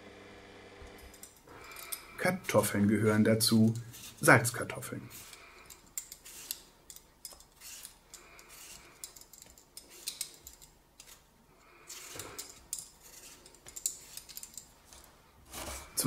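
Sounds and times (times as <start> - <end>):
peeler scraping potato: 3.7 - 4.4, 5.1 - 14.7, 15.4 - 16.0.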